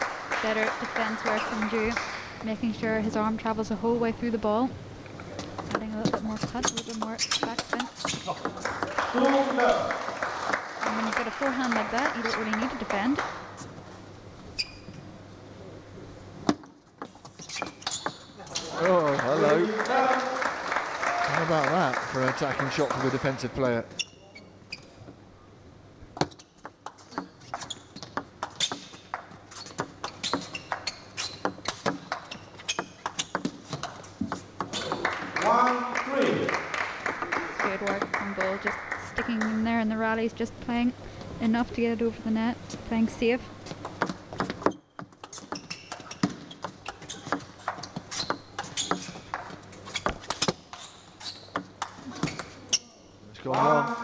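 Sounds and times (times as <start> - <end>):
table tennis ball knocking: 43.8 - 50.6.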